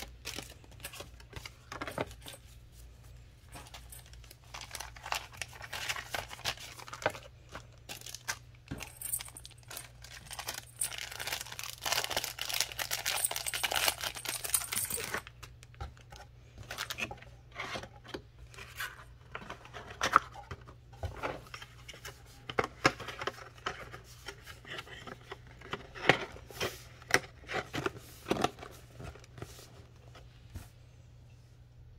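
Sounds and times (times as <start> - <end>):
plastic bag and paper rustling: 3.3 - 15.5.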